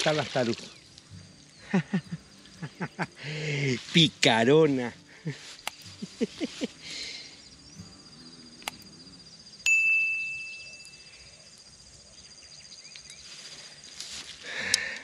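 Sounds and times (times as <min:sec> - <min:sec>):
bell-like ding: 0:09.6 - 0:11.1.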